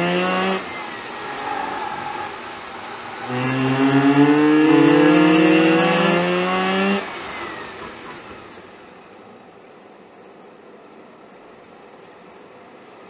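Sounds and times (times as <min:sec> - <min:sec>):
rotary engine revving: 0:00.0 - 0:08.6.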